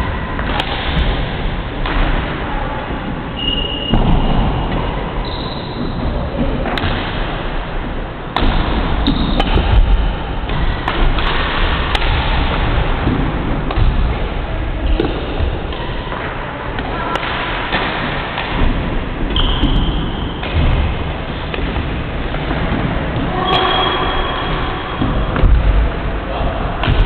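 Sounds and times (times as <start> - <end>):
steady background noise: 0.0 - 27.0
racket striking shuttlecock: 0.4 - 1.2, 8.3 - 14.0, 14.9 - 20.9
shoe squeaks on wooden court: 3.4 - 4.0, 5.2 - 6.0.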